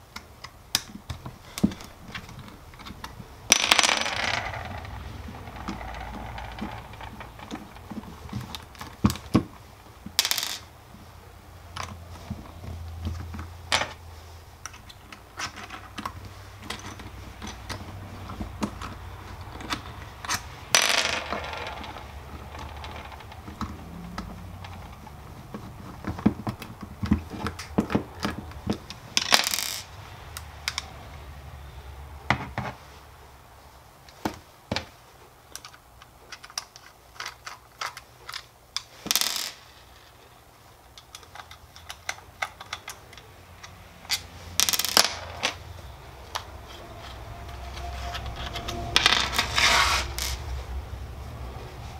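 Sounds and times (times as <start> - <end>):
screws clicking and clinking: 40.9 - 45.5.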